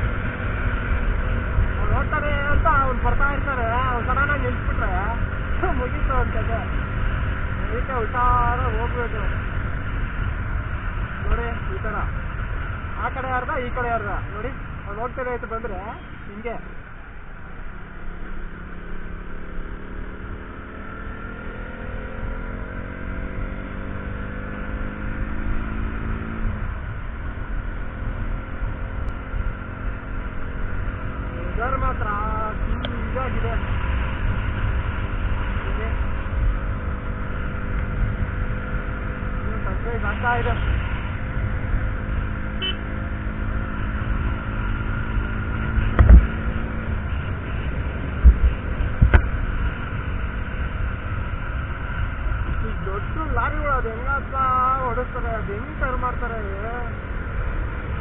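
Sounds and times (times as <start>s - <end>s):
motorcycle engine drone: 0.0s - 58.0s
wind rumble on microphone: 44.0s - 53.4s.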